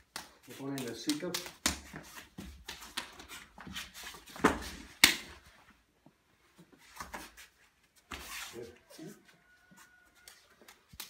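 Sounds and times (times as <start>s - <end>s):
hands slapping and tapping: 0.0s - 3.8s, 4.4s - 5.4s, 10.2s - 11.0s
feet shuffling: 0.0s - 11.0s.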